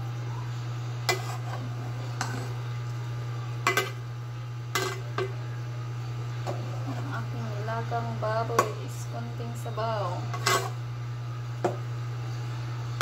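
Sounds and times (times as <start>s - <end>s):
steady low hum: 0.0s - 13.0s
metal ladle scraping cooking pot: 1.1s - 1.6s, 10.3s - 10.8s.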